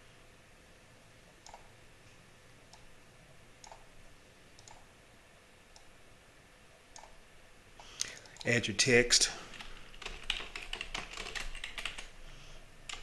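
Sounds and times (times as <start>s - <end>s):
computer mouse clicks: 1.4s - 1.7s, 3.6s - 3.9s, 4.6s - 4.9s, 5.7s - 5.9s, 6.9s - 7.2s.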